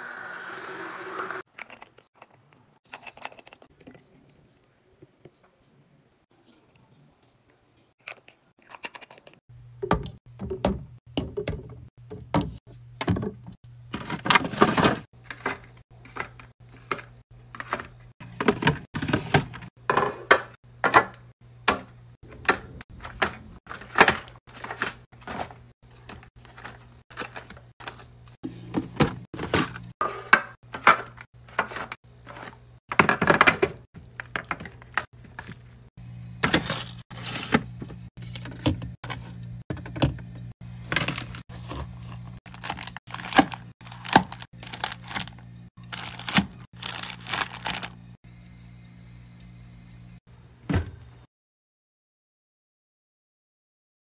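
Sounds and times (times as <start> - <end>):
containers set down in plastic bins: 9.8 - 21.1, 21.7 - 35.7, 36.4 - 47.9.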